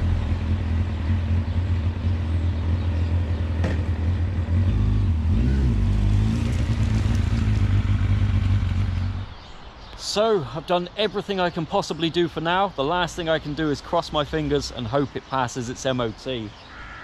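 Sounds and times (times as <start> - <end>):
motorcycle engine pulling away: 0.0 - 9.6.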